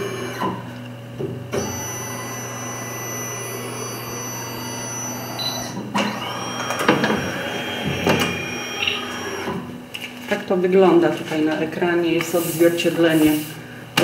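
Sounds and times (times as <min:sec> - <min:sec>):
book scanner motor humming: 0:00.0 - 0:00.9, 0:01.5 - 0:09.8.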